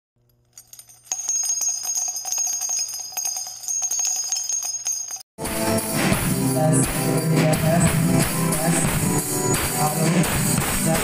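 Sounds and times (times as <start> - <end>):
jingling bell-like sound effect: 0.6 - 5.3.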